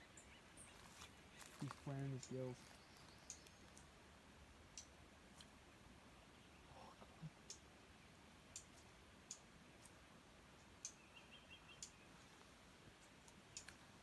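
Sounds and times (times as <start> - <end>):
faint sharp clicks: 1.0 - 3.9, 7.4 - 7.7, 8.5 - 10.0, 13.0 - 13.9.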